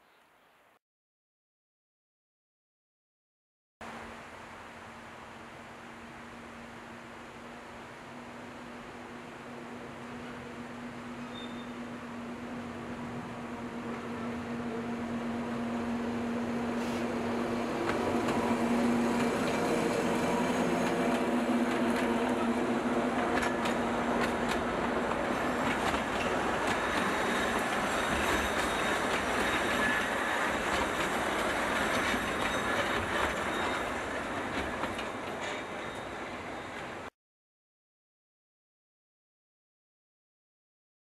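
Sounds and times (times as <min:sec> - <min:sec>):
diesel locomotive engine hum: 0:03.9 - 0:37.1
faint thin wheel squeal: 0:11.2 - 0:11.9, 0:26.8 - 0:30.6, 0:31.3 - 0:34.2, 0:35.4 - 0:36.8
wheels clicking over rail joints: 0:20.6 - 0:36.1.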